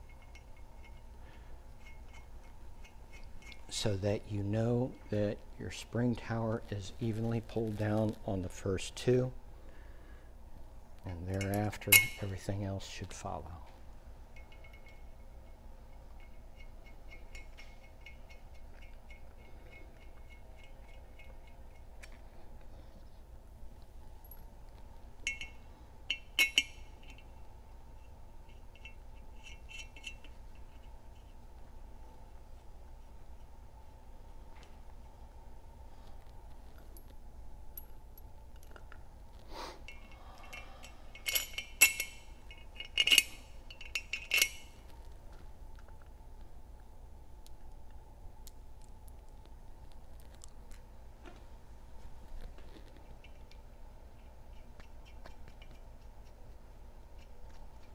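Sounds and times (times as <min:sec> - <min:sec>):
metal clinks of bolts and tool: 0:00.0 - 0:05.2, 0:11.1 - 0:12.6, 0:14.3 - 0:22.2, 0:25.2 - 0:27.4, 0:28.0 - 0:31.3, 0:39.9 - 0:44.9, 0:53.0 - 0:53.8.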